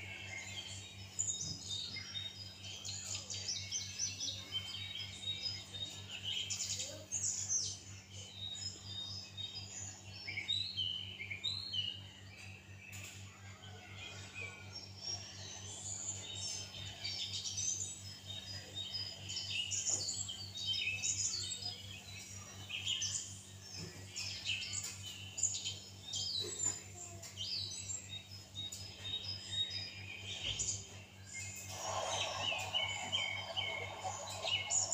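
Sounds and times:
small birds chirping: 0.0 - 34.9
steady low hum: 28.9 - 34.9.

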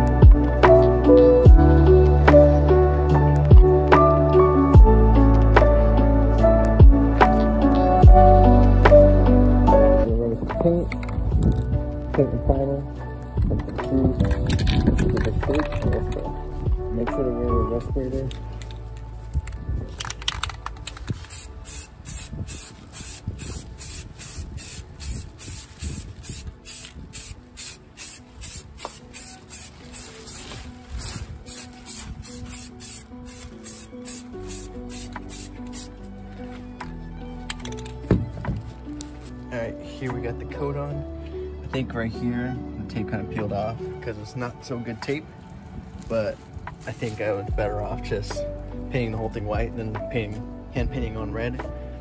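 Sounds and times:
slow background music: 0.0 - 52.0
deep kick drum: 8.0 - 8.2
spray paint can hissing: 20.0 - 36.0.

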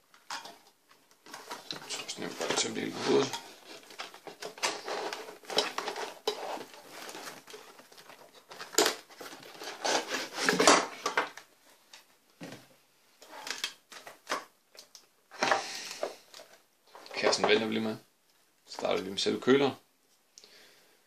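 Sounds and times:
cardboard box scraping: 9.2 - 10.7.

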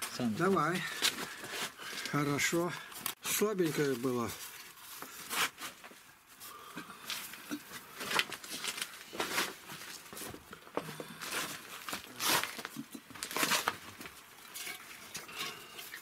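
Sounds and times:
cat food rustling and crinkling: 7.3 - 10.5, 11.1 - 16.0.

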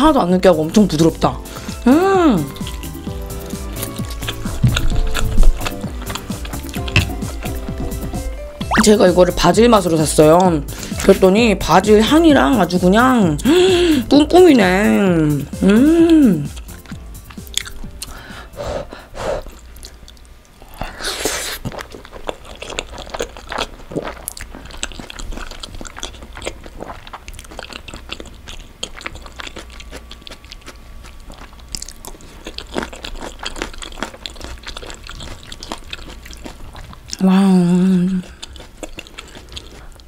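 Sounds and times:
wet chewing clicks and smacks: 2.5 - 8.1, 8.7 - 8.9, 16.6 - 18.2, 19.5 - 20.6, 21.6 - 37.2, 38.2 - 40.0
breathy hissing: 18.1 - 19.5.

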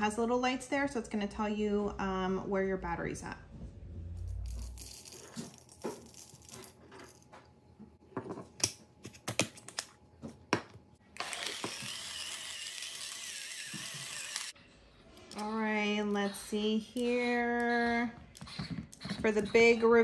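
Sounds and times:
grinder parts clicking and knocking: 11.2 - 14.5
electric grinder motor grinding: 11.2 - 14.6.

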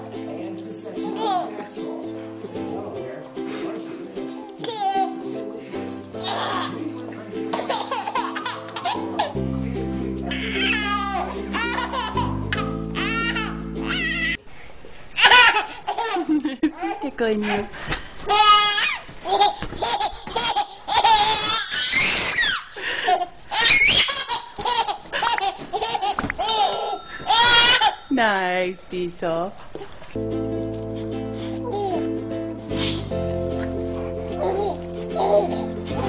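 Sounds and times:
background music: 0.0 - 14.4, 30.2 - 36.0
baby laughing: 1.0 - 1.6, 4.3 - 5.3, 6.2 - 9.4, 10.2 - 14.4, 15.2 - 17.0, 18.3 - 28.0, 31.4 - 33.1, 34.3 - 36.0
baby squealing: 10.3 - 14.4, 20.9 - 22.7, 23.5 - 24.5, 26.4 - 28.1.

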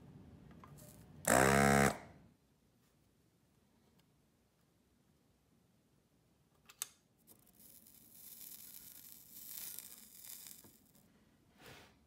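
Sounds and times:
solder flux sizzling and hissing: 7.4 - 11.2.

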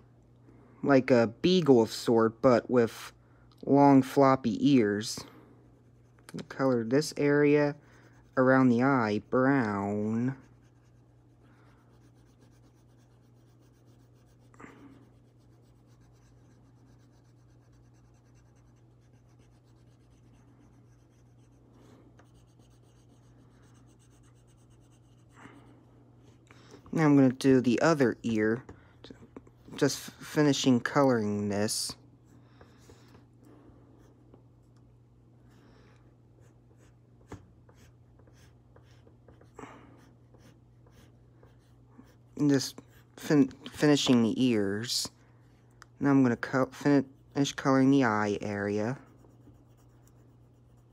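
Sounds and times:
pencil scratching on paper: 5.7 - 26.4, 36.4 - 44.2, 46.4 - 50.9.

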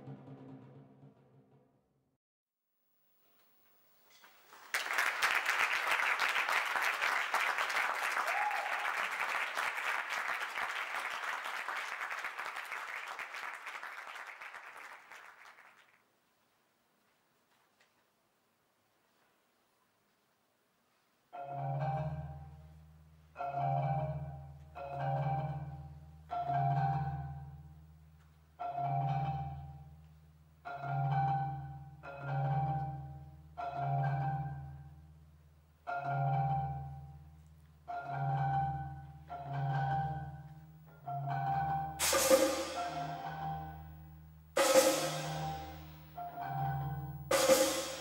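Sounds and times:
low mallet percussion notes: 21.3 - 48.0
sharp bright strike: 42.0 - 43.2.

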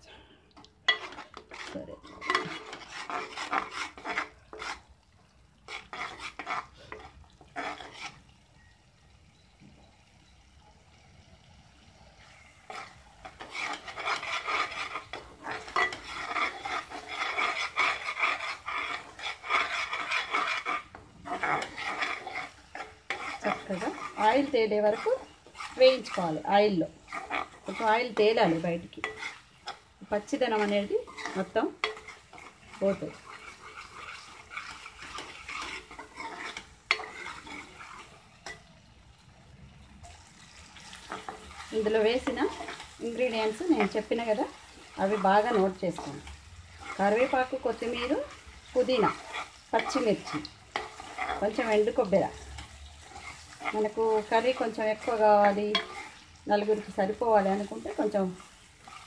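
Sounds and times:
faint sizzle: 0.0 - 59.0
metal spatula scraping a pan: 0.8 - 4.9, 5.6 - 8.7, 12.2 - 39.0, 40.1 - 59.0.

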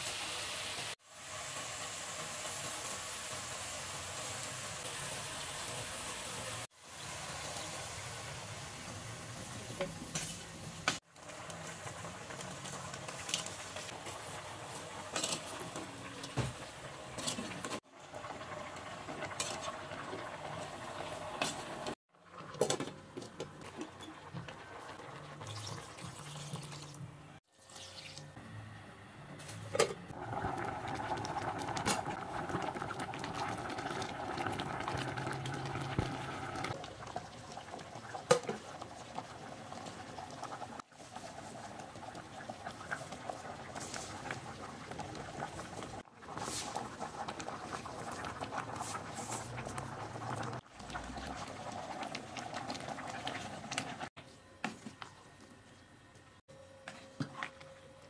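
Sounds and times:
soup bubbling: 30.1 - 54.2.

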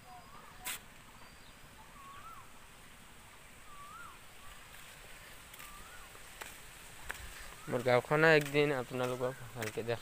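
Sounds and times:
bird whistled call: 0.0 - 2.5, 3.6 - 4.6, 5.6 - 6.1
faint outdoor hush: 0.0 - 10.0.

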